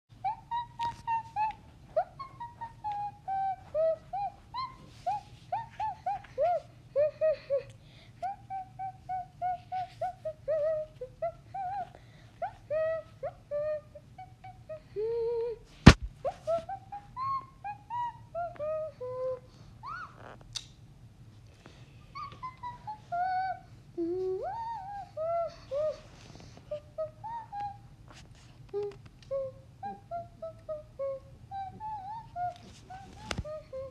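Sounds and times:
person humming: 0:12.7 - 0:15.6, 0:23.1 - 0:26.0, 0:28.7 - 0:33.9.

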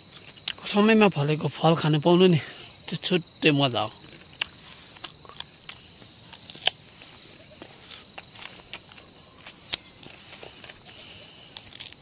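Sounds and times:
high insect trill: 0:00.0 - 0:12.0
leaves and stems crackling: 0:04.0 - 0:12.0.

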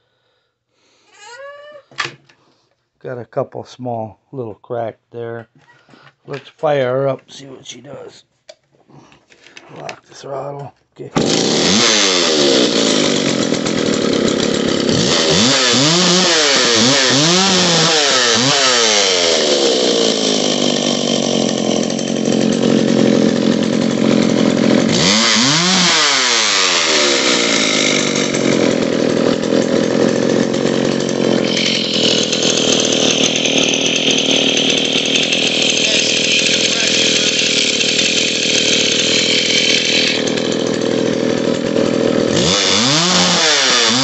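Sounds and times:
chainsaw running fast: 0:11.2 - 0:44.0.

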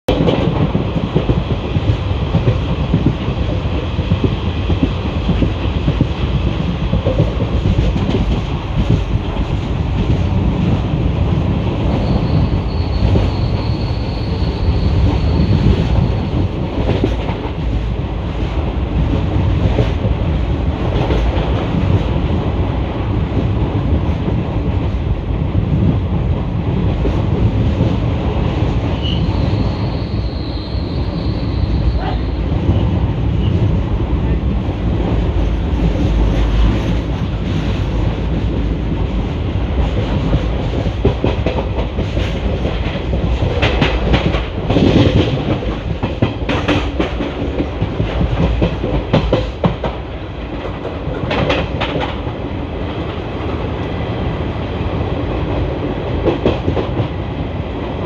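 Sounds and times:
train wheels rumbling on rails: 0:00.1 - 0:58.0
high wheel squeal: 0:11.9 - 0:16.4, 0:29.0 - 0:33.5.

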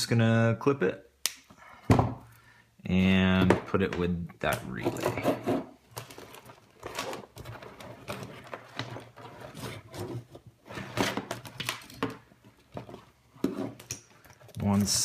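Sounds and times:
wires and connectors rustling: 0:03.7 - 0:15.0.

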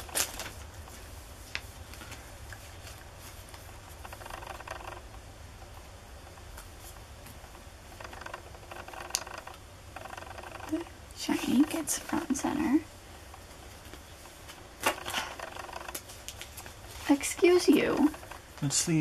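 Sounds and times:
cards rustling into plastic sleeves: 0:00.0 - 0:03.7.

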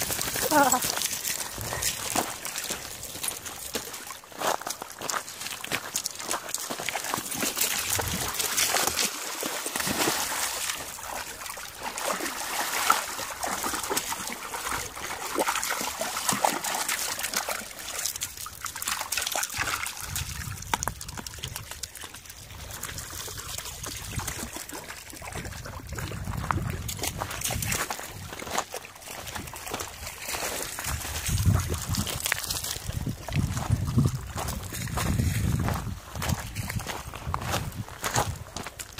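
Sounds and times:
dogs splashing in shallow water: 0:00.0 - 0:38.9
water sloshing and trickling: 0:00.0 - 0:38.9.

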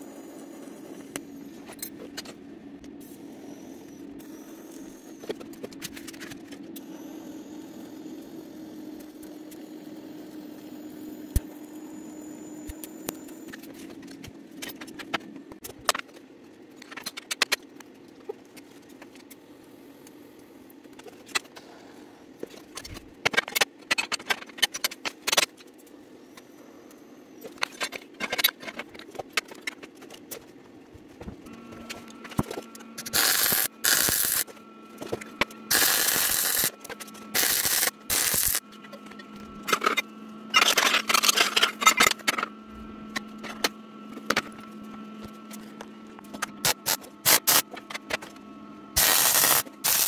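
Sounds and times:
steady low hum: 0:30.6 - 0:50.0.

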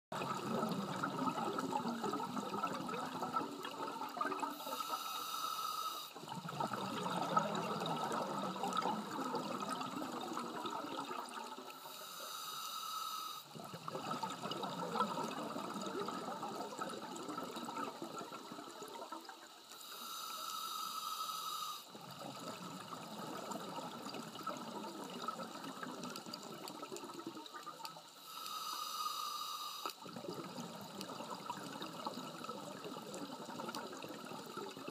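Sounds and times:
diver regulator hissing inhale: 0:04.5 - 0:06.2, 0:11.7 - 0:13.6, 0:19.7 - 0:22.0, 0:28.1 - 0:30.1.

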